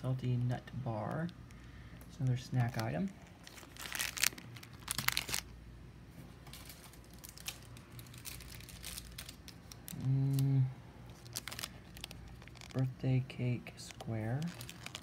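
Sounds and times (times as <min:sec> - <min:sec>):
plastic wrappers crinkling: 0:01.1 - 0:05.5, 0:06.4 - 0:15.0
person humming briefly: 0:10.0 - 0:10.8.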